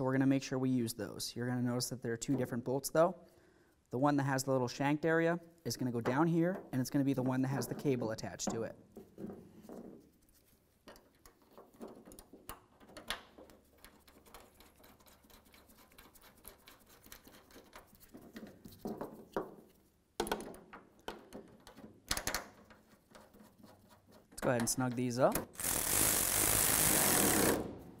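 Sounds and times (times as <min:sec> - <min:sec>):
small metal clicks and scrapes: 0:10.8 - 0:18.6.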